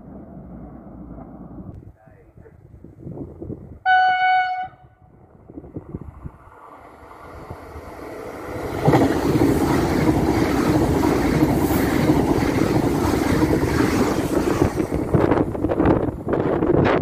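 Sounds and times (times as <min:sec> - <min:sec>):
high-speed train passing: 0:00.0 - 0:17.0.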